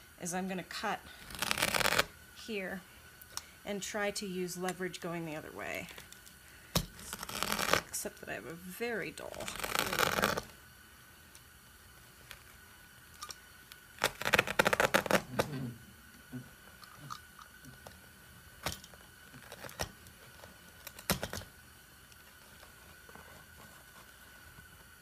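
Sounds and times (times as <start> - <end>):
fabric and stuffing pulled loose: 1.2 - 2.1, 14.0 - 15.7.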